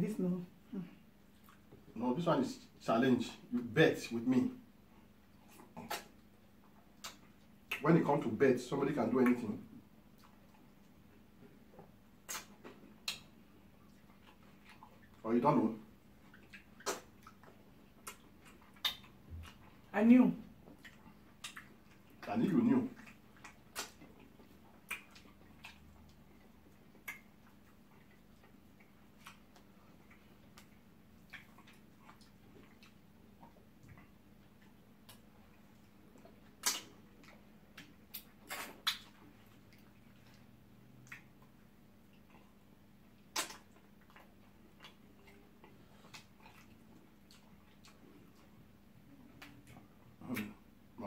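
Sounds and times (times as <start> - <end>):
wet mouth clicks and lip smacks: 5.4 - 7.8, 11.8 - 15.2, 16.2 - 19.8, 20.7 - 22.3, 22.9 - 42.5, 43.2 - 48.5, 49.2 - 50.6
fingers in slimy soup: 11.9 - 15.2, 16.2 - 19.9, 20.6 - 50.7.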